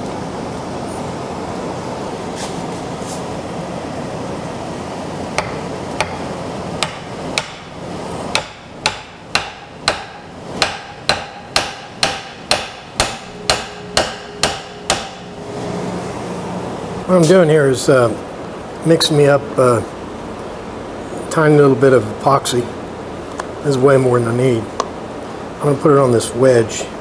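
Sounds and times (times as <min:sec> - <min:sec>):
steady background noise: 0:00.0 - 0:27.0
hammer striking wooden handle: 0:05.4 - 0:15.3.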